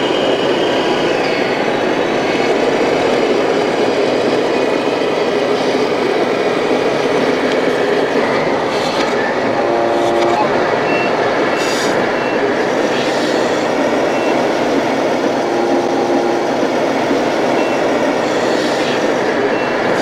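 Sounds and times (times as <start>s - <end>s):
model trucks diesel engine noise: 0.0s - 20.0s
busy exhibition hall din: 6.6s - 20.0s.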